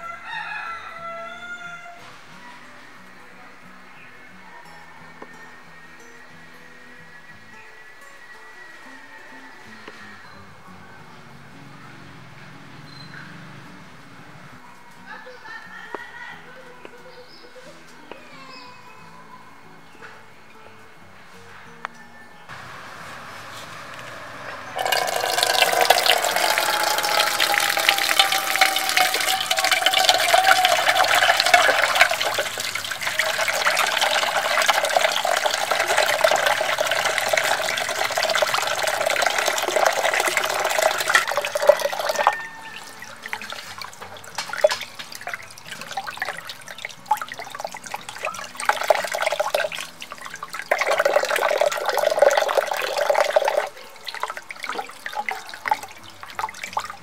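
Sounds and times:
hands rinsing fish: 24.8s - 57.0s
tap water splashing: 24.8s - 57.0s.

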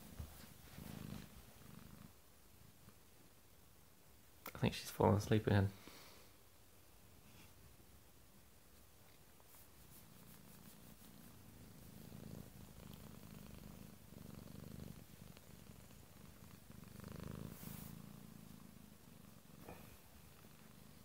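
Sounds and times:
cat purring: 0.0s - 3.4s, 9.1s - 21.0s.

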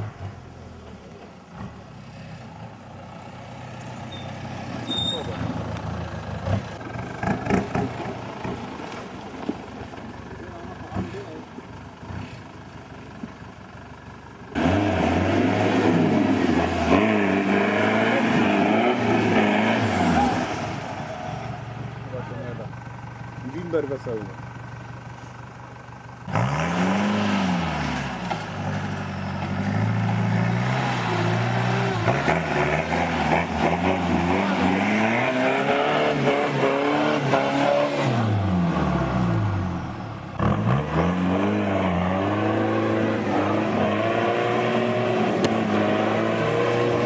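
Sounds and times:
engine revving: 4.6s - 8.6s, 14.5s - 22.6s, 26.2s - 47.0s.

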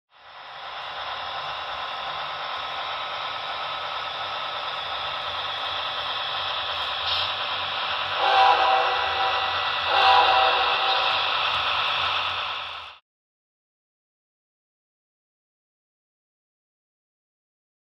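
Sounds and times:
model locomotive engine sound: 0.1s - 13.0s
locomotive horn blasts: 8.2s - 11.2s.

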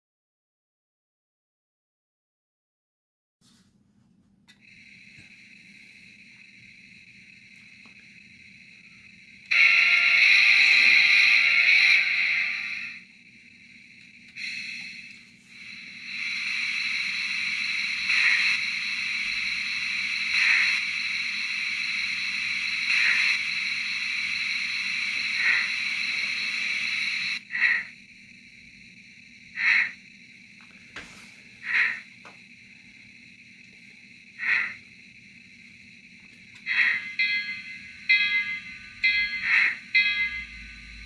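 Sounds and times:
slow steam chuffs: 4.5s - 41.0s
steady steam hiss: 4.5s - 41.0s
model locomotive whistle: 9.4s - 13.0s, 14.3s - 27.8s.

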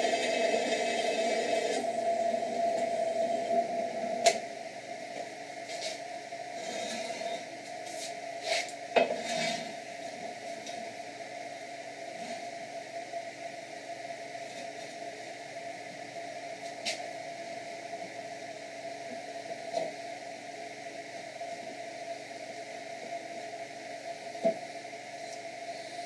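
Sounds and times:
drill press motor running: 0.0s - 4.4s.

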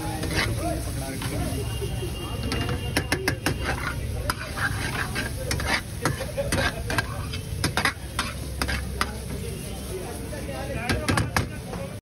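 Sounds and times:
ladle clinking and scraping a pan: 0.0s - 1.6s, 2.4s - 9.5s
light sizzle of frying: 0.0s - 12.0s.

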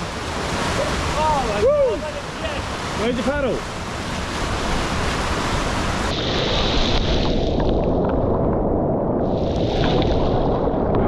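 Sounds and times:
whitewater rushing: 0.0s - 8.1s.

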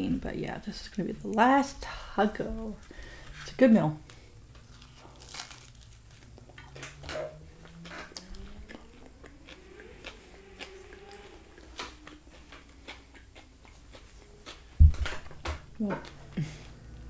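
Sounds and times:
biting into soft taco: 4.6s - 15.3s
chewing with wet mouth clicks: 6.4s - 16.2s.

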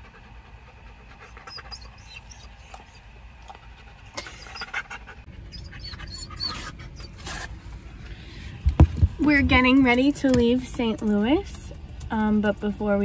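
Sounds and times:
low steady rumble: 0.0s - 13.0s
dog whimpering: 1.2s - 3.1s, 4.1s - 7.5s.

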